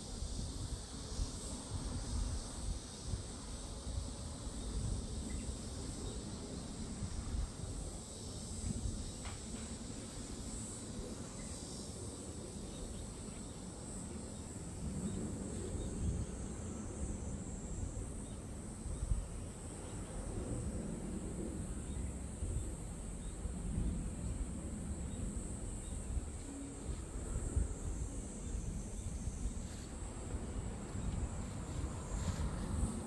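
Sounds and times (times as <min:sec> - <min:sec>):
insects droning: 0:00.0 - 0:33.0
wind buffeting microphone: 0:20.3 - 0:33.0.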